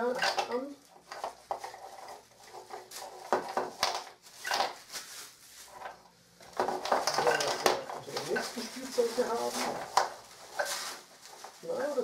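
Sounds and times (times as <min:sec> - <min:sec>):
wooden parts clacking: 0:00.0 - 0:04.8, 0:05.8 - 0:08.7
packing paper crinkling: 0:04.0 - 0:06.1, 0:06.7 - 0:12.0.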